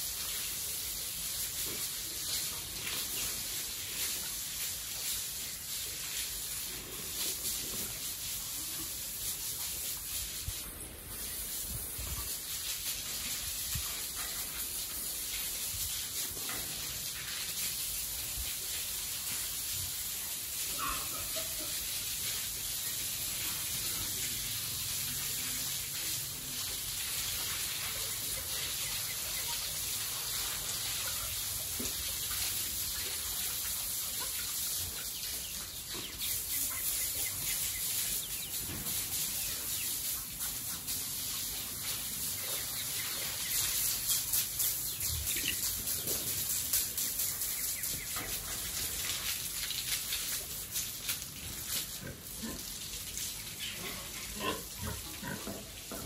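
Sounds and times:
movement in pig pen: 0.0 - 56.0
outdoor background hiss: 0.0 - 56.0.

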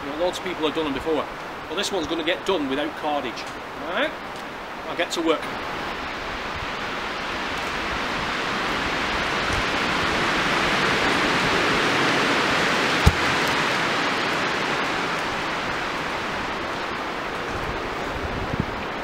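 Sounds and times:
log thumping on ground: 13.0 - 13.7.

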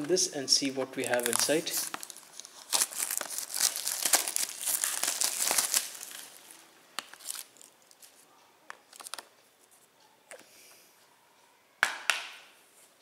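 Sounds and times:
plastic shrink-wrap tearing: 1.0 - 8.0.

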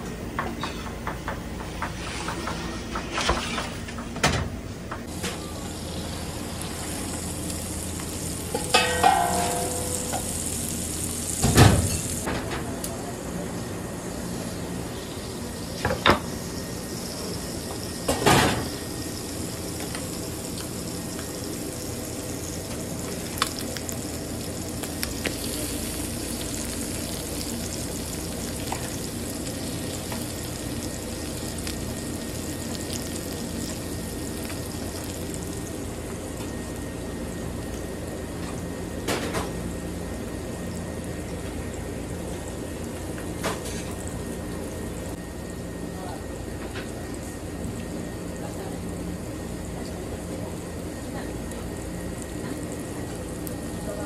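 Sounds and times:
food sizzling in clay pan: 5.0 - 12.3, 14.0 - 45.3.

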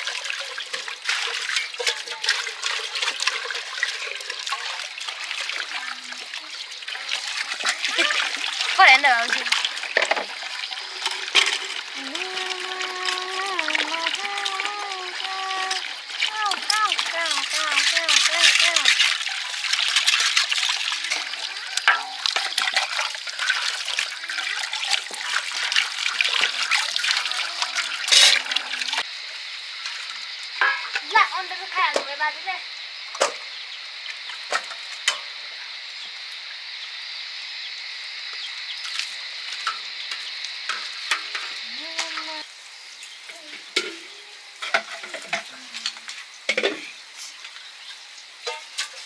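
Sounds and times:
water splashing: 0.0 - 29.1
water pouring from hose into basin: 0.0 - 32.6, 38.7 - 49.0
metal dishes clinking: 21.8 - 23.0, 28.1 - 28.5, 30.6 - 31.0, 44.6 - 45.9.

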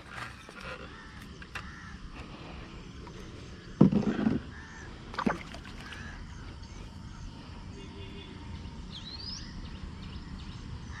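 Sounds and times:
crow cawing: 0.7 - 2.0, 4.5 - 4.9, 5.8 - 6.4.

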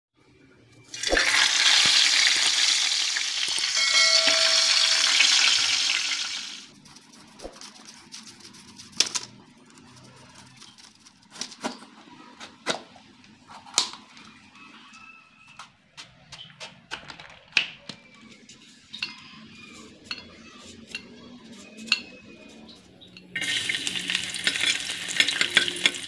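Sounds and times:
food sizzling in oil: 0.9 - 6.7, 23.4 - 26.0.

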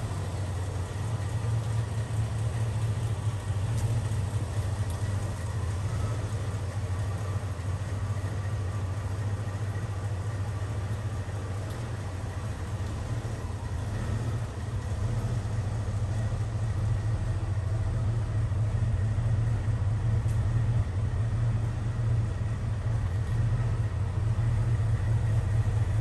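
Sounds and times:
car engine idling: 0.0 - 26.0.

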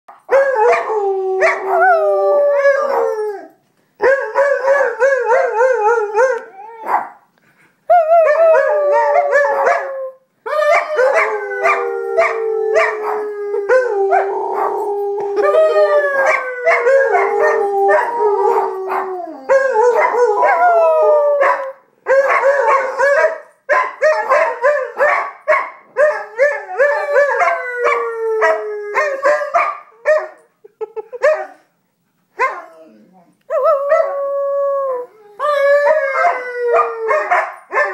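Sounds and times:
dog howling: 8.0 - 23.4, 32.6 - 37.9.

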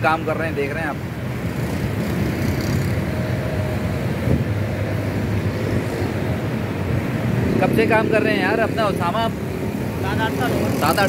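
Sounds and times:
pedestal fan blowing: 0.0 - 11.0.

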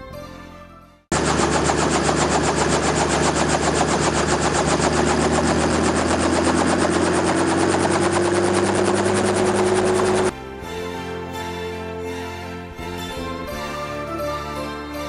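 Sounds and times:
helicopter running: 1.1 - 10.4.

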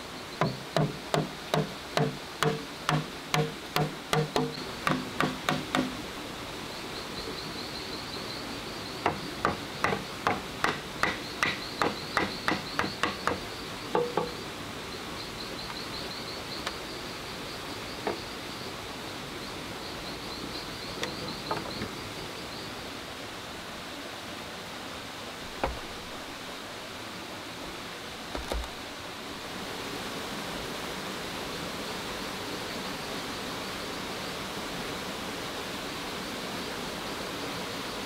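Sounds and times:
insect chirping: 0.0 - 29.9
hollow knocks on bamboo tubes: 0.4 - 6.0, 9.0 - 14.4.

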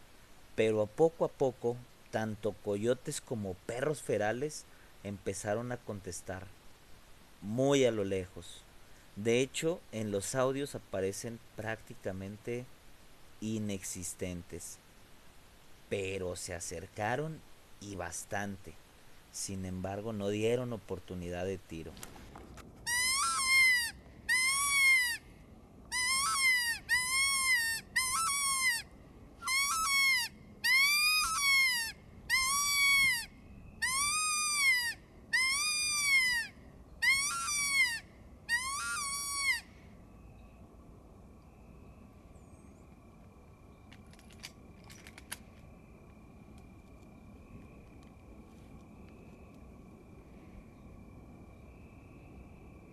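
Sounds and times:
predator call wails: 22.9 - 25.2, 25.9 - 39.7
faint steady high tone: 22.9 - 52.9
faint clicks: 43.8 - 47.1.

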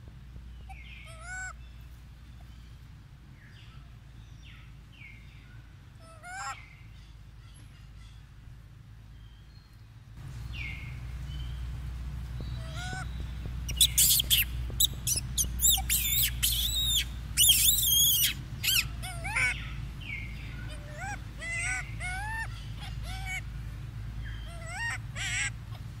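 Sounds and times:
low rumble of handling or wind: 0.0 - 26.0
macaque squealing: 13.7 - 19.8, 20.6 - 23.4, 24.4 - 25.9.

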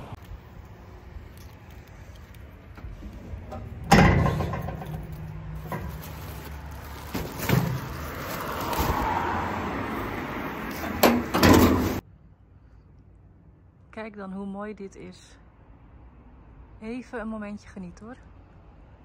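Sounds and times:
loud metal clunk: 3.5 - 5.0, 11.0 - 12.0
plastic bin bag rustling: 5.5 - 9.2.

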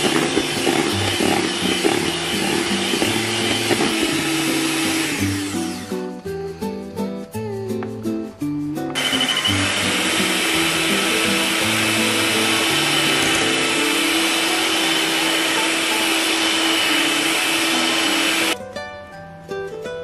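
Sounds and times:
electric hand mixer whisking: 0.0 - 6.0, 9.0 - 18.6
background music: 0.0 - 20.0.

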